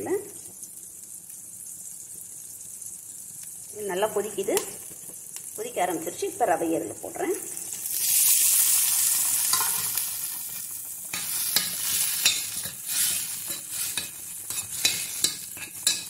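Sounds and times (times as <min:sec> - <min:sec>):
spoon scraping a pan: 0:09.4 - 0:10.1, 0:11.1 - 0:16.0.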